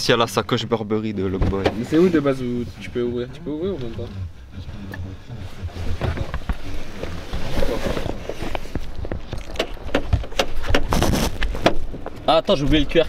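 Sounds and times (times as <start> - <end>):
rustling of bag and camera: 5.7 - 11.6.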